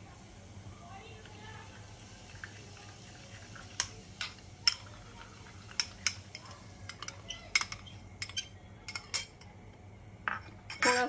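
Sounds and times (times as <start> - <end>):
metal spoon clinking in ceramic bowl: 5.8 - 9.5.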